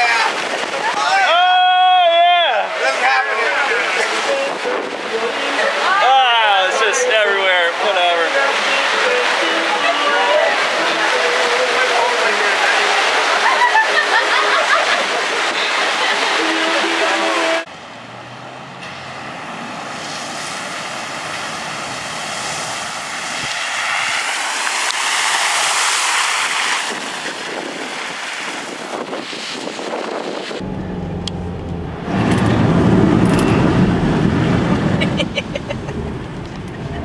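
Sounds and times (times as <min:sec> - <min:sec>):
car tyres hissing through water: 0:19.1 - 0:30.6
rain on car windows: 0:23.5 - 0:29.7
low rumble inside a car: 0:30.6 - 0:33.8.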